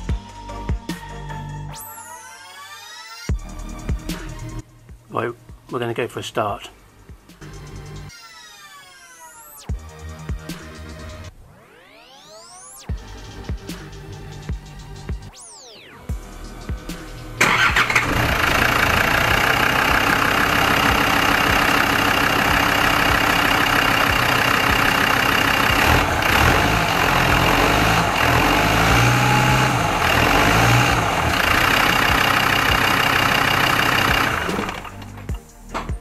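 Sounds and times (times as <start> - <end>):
diesel engine idling: 17.3 - 35.3.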